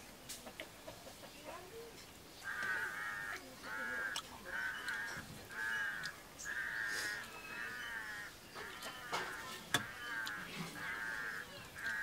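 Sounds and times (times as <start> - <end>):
crow cawing: 2.4 - 12.0.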